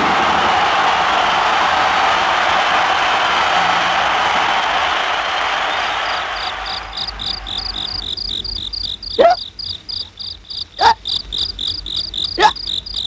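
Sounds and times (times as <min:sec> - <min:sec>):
applause: 0:00.0 - 0:08.2
cricket-like chirping: 0:06.1 - 0:13.0.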